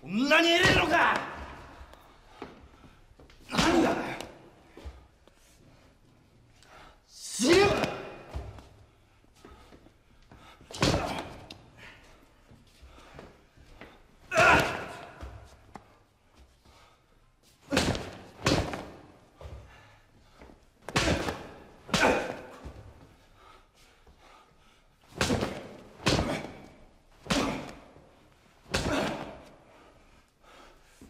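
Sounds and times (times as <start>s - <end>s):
heavy thuds of blows: 10.4s - 11.5s.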